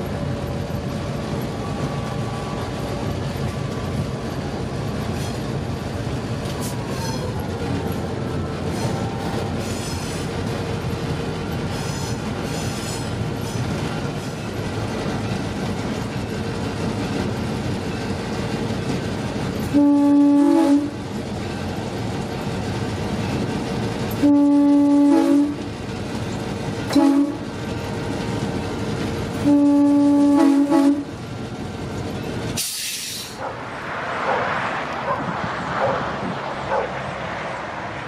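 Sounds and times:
rail noise: 0.0 - 38.0
locomotive air horn blasts: 19.6 - 21.0, 24.2 - 25.7, 26.9 - 27.5, 29.4 - 31.1.

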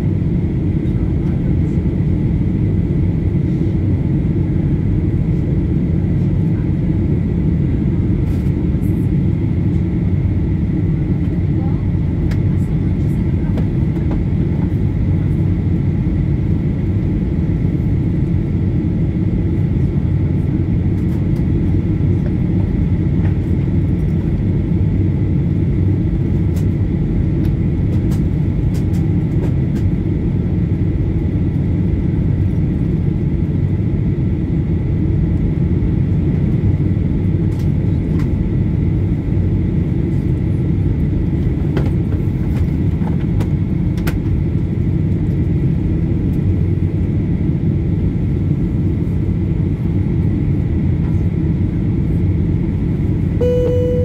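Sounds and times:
airplane cabin roar: 0.0 - 54.0
faint steady whine: 53.1 - 54.0.

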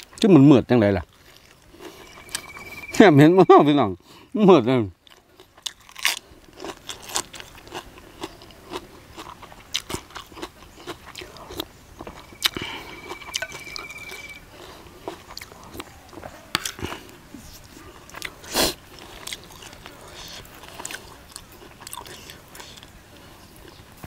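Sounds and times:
crisp chewing crunches: 5.0 - 12.8, 18.1 - 23.8.

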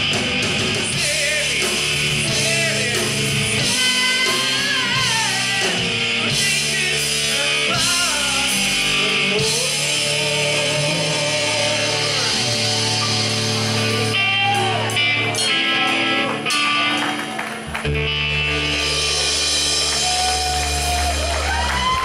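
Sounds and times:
man singing lead vocal: 0.0 - 13.2
live rock band: 0.0 - 22.0.

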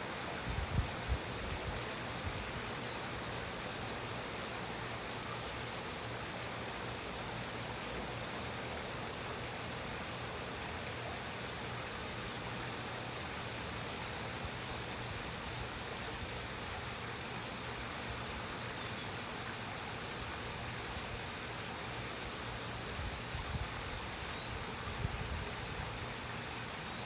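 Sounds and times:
water rushing in a rocky stream: 0.0 - 27.0.

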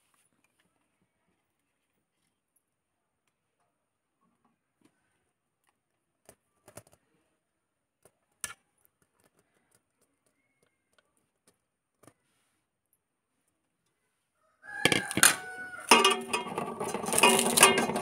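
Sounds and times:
spoon clinking on steel plate: 14.9 - 18.0.

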